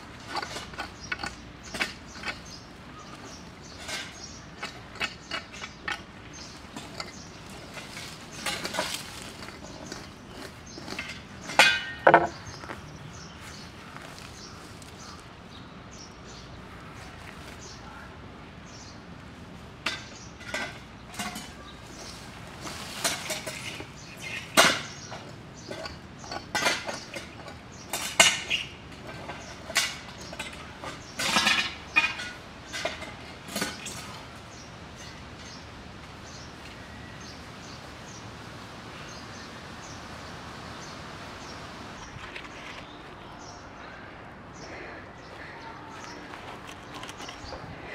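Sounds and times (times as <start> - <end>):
hand tools scraping: 0.1 - 12.4, 19.9 - 34.2
hand tools clinking on metal: 0.2 - 12.4, 19.9 - 21.6, 23.0 - 34.2.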